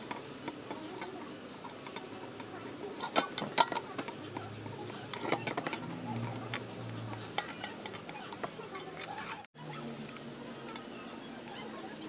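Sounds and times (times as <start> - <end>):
utensil scraping metal pot: 0.0 - 9.5.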